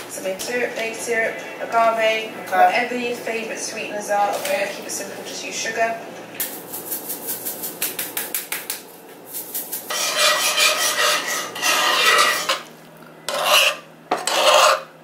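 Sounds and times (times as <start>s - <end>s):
utensil scraping a pan: 9.4s - 12.7s, 13.3s - 14.9s.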